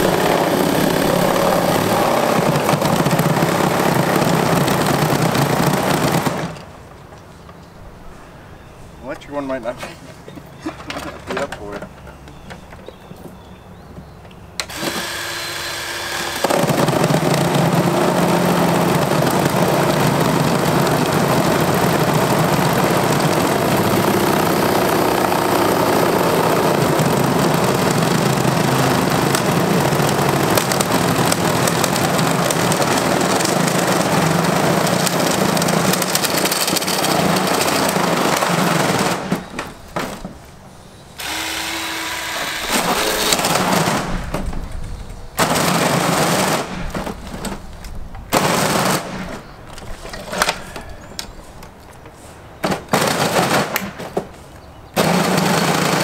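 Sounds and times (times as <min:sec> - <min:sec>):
chainsaw cutting plastic casing: 0:00.0 - 0:06.7, 0:14.6 - 0:40.4, 0:41.2 - 0:44.7, 0:45.4 - 0:47.6, 0:48.3 - 0:51.4, 0:52.6 - 0:54.3, 0:55.0 - 0:56.0
chainsaw motor whine: 0:00.0 - 0:06.7, 0:14.6 - 0:39.7, 0:41.2 - 0:44.4, 0:55.0 - 0:56.0.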